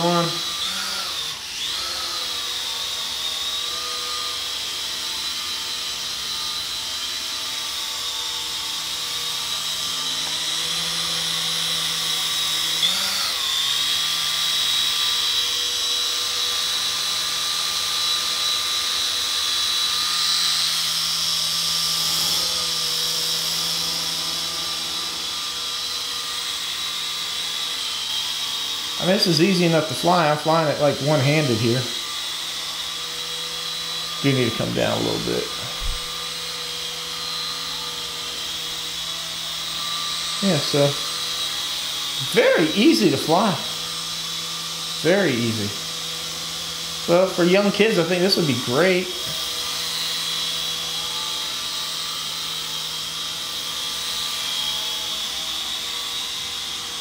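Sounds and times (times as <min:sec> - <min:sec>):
toy helicopter motor whine: 0:00.0 - 0:57.0.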